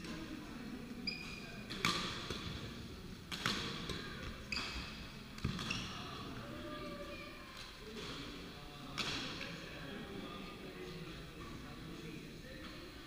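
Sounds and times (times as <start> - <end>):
rackets striking shuttlecock: 1.7 - 2.5, 3.3 - 4.8.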